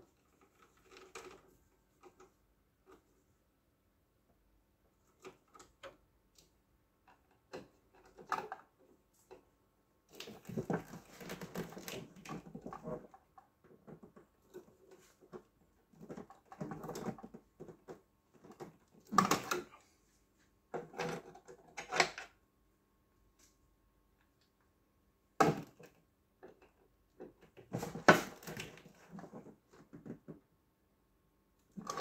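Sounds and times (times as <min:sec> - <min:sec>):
clicks and knocks of parts: 0:10.1 - 0:19.7, 0:31.7 - 0:32.0.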